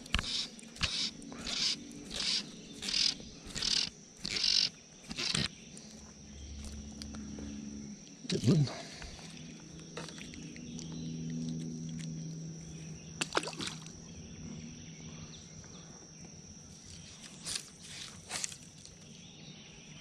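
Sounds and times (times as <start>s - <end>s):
high insect drone: 0.0s - 20.0s
low hum: 0.0s - 20.0s
fish splashing into water: 13.2s - 13.9s.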